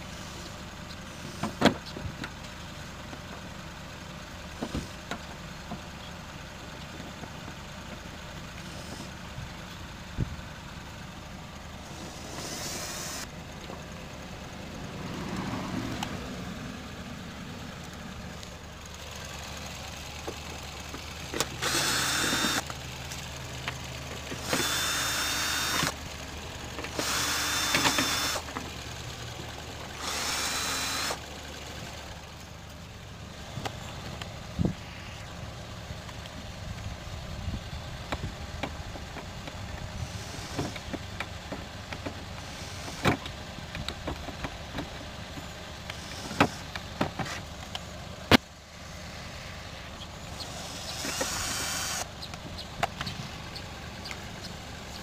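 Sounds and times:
cordless drill whining: 0:11.9 - 0:13.3, 0:21.6 - 0:22.6, 0:24.4 - 0:26.0, 0:26.9 - 0:28.5, 0:30.0 - 0:31.2, 0:50.4 - 0:52.1.

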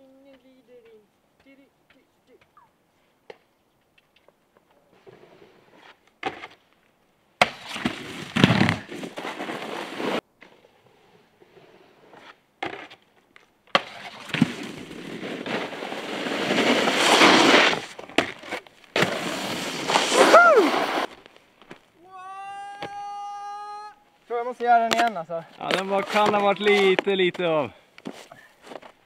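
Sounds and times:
snowboard scraping over snow: 0:07.4 - 0:12.3, 0:13.8 - 0:21.3.

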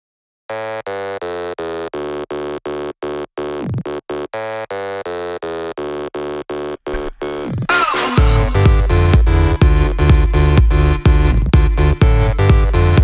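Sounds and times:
falling synth sweep: 0:06.9 - 0:09.5
pulsing synth chord: 0:06.9 - 0:10.0.

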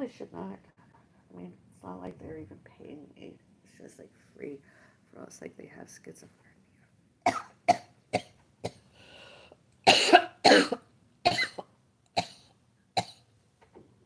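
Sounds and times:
woman coughing: 0:07.3 - 0:08.8, 0:09.9 - 0:12.4.

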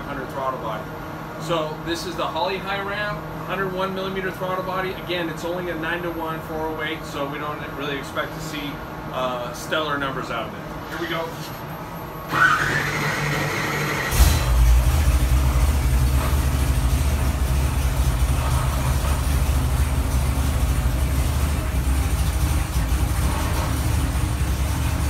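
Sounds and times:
engine cranking whine: 0:12.0 - 0:25.0
engine idling: 0:12.3 - 0:25.0.

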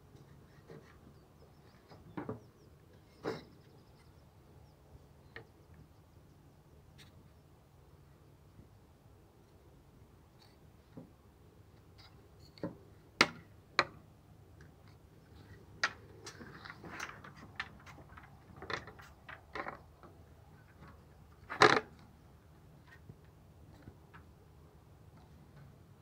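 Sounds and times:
clicks and knocks of plastic parts: 0:15.4 - 0:22.1.

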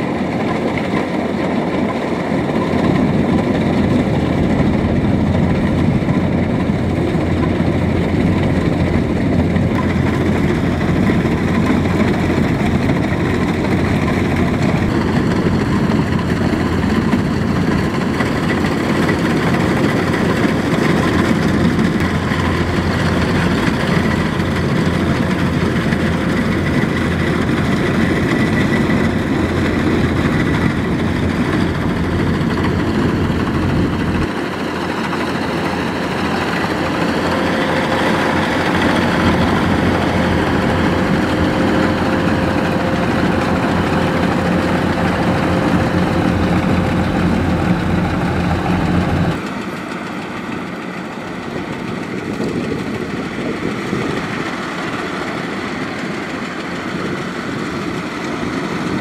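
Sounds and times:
diesel engine drone: 0:00.0 - 0:59.0
threshing machinery churning: 0:04.6 - 0:50.7.

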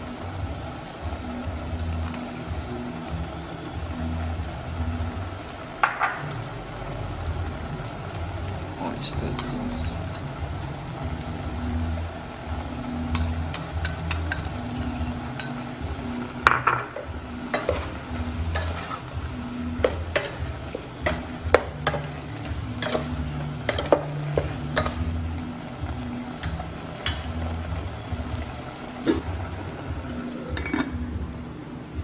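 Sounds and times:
ladle clanking and scraping pot: 0:13.1 - 0:15.7, 0:16.5 - 0:19.2, 0:19.8 - 0:25.1, 0:30.4 - 0:31.1.

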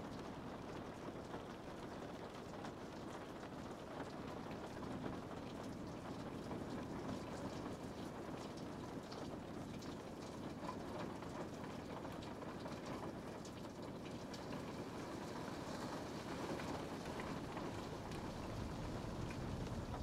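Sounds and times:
rain falling: 0:00.1 - 0:20.0
raindrops ticking: 0:15.6 - 0:20.0.

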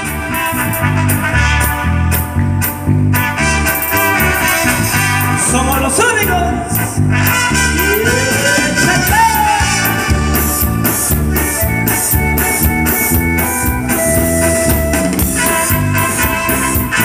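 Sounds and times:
live band playing: 0:00.0 - 0:17.0
person singing: 0:07.6 - 0:09.9.

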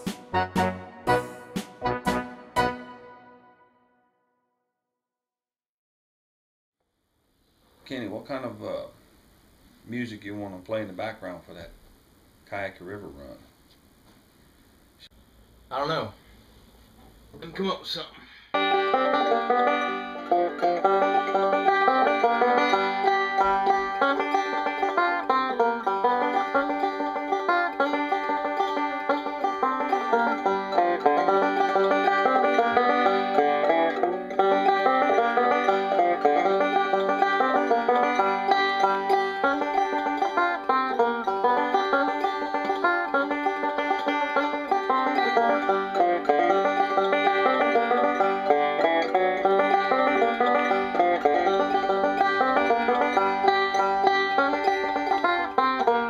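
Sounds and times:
banjo plucked notes: 0:00.0 - 0:03.4, 0:18.6 - 0:56.0.

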